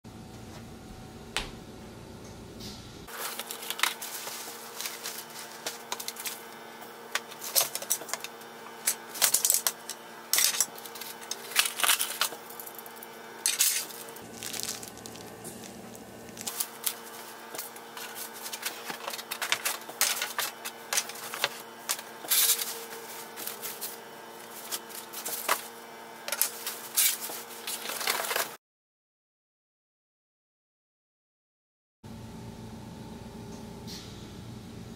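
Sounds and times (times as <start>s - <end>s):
steady low hum: 0.1s - 27.9s
cardboard and plastic rustling: 3.1s - 6.5s, 7.2s - 9.8s, 13.5s - 25.7s, 26.3s - 28.6s
packaging and hardware clattering: 7.2s - 12.4s, 13.5s - 25.7s.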